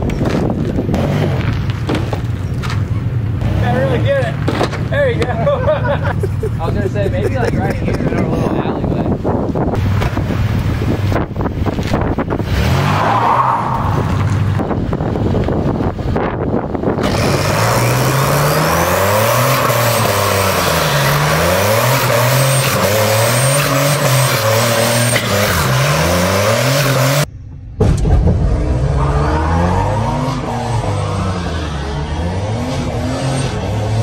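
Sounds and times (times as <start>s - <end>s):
tires spinning on pavement: 0.0s - 6.8s, 8.7s - 27.3s, 28.3s - 34.0s
engines revving: 0.0s - 34.0s.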